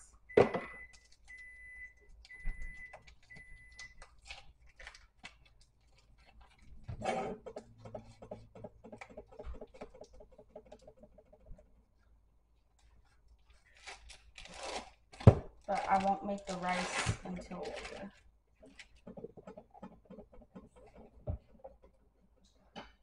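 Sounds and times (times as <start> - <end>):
foil wrapper crinkling: 3.0 - 6.8, 12.8 - 19.0.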